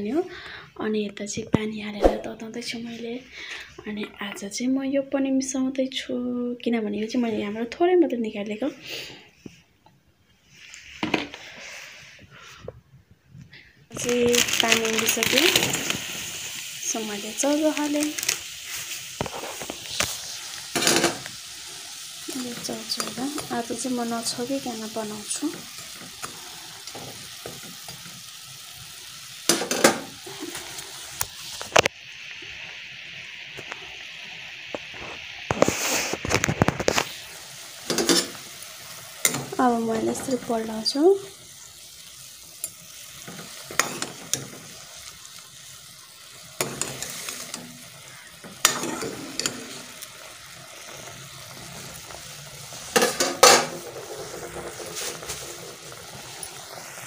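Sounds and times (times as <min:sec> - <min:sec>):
steady hiss: 0:08.8 - 0:57.0
water simmering in a pot: 0:13.8 - 0:57.0
metal spoon scraping a pot: 0:48.4 - 0:49.8.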